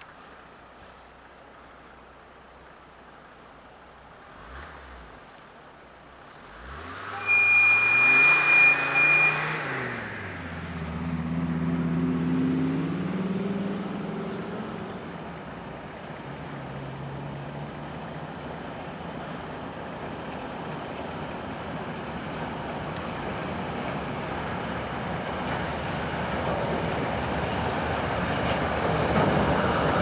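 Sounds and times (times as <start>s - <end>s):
diesel locomotive engine: 0.0s - 30.0s
locomotive horn: 6.9s - 9.6s.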